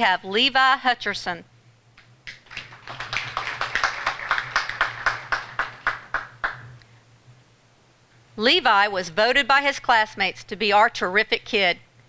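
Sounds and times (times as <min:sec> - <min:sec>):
audience applause: 0:02.3 - 0:06.7.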